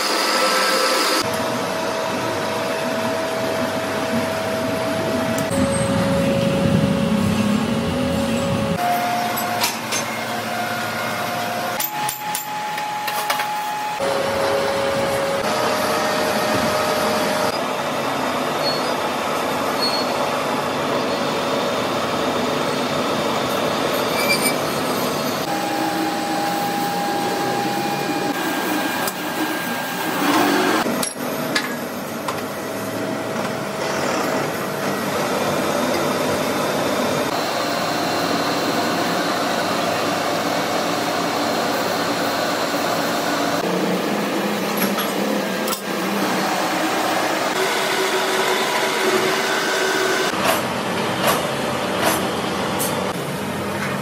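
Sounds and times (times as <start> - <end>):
metalworking machinery din: 0.0 - 20.8, 21.6 - 53.7
thin machine whine: 0.0 - 30.9.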